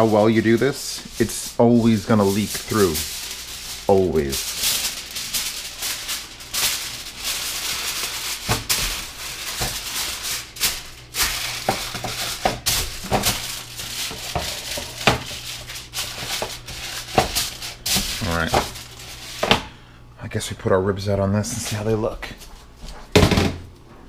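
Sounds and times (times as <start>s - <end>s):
aluminium foil crinkling: 0.0s - 19.7s.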